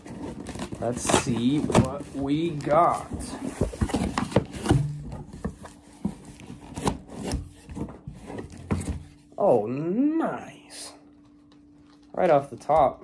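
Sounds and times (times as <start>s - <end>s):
cardboard flaps scraping: 0.0s - 9.2s.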